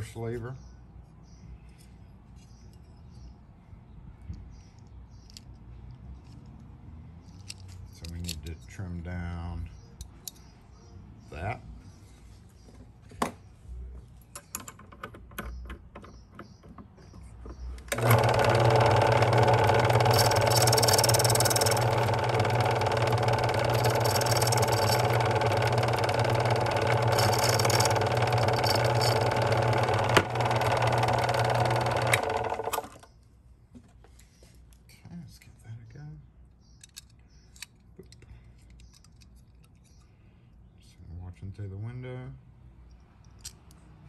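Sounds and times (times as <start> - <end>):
key-cutting machine running: 17.9 - 33.0.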